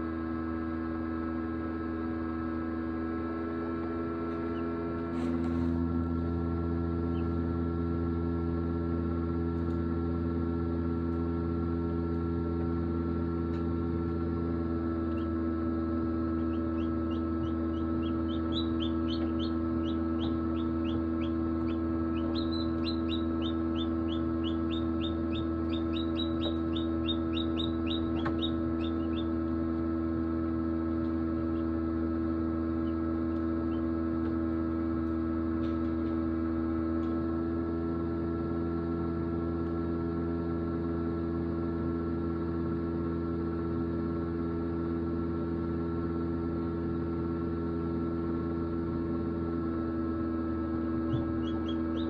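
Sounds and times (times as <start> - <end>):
incubator fan hum: 0.0 - 52.0
chick peeping: 16.4 - 29.3, 51.0 - 52.0.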